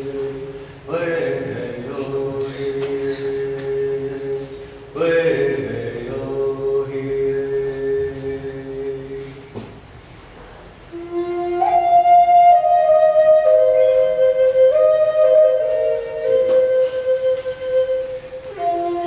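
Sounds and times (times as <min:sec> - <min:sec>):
low male voice chanting: 0:00.0 - 0:09.6
wooden flute melody: 0:10.9 - 0:19.0.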